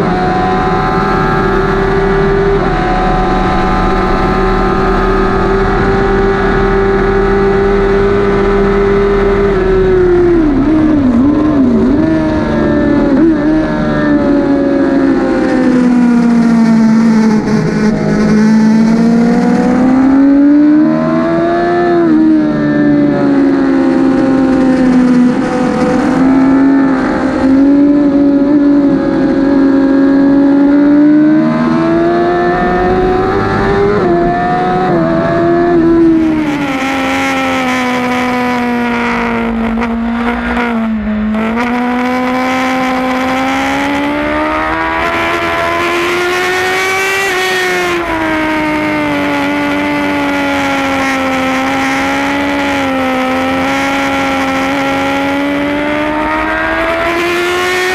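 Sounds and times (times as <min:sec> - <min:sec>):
wind rushing: 0:00.0 - 0:15.5
motorcycle engine revving: 0:00.0 - 0:57.9.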